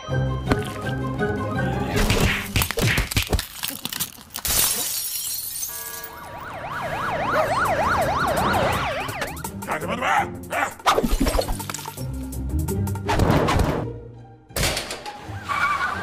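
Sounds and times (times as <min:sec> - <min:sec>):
background music: 0:00.0 - 0:03.3, 0:07.8 - 0:16.0
glass shattering: 0:02.4 - 0:06.1
alarm siren wailing: 0:05.7 - 0:09.6.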